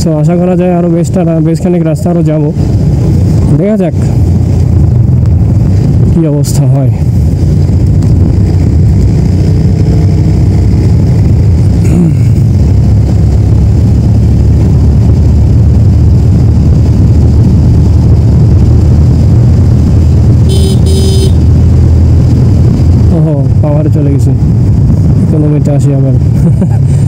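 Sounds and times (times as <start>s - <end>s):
motorcycle engine cruising: 0.0s - 27.0s
wind rumble on microphone: 0.0s - 27.0s
short horn beeps: 20.5s - 21.4s.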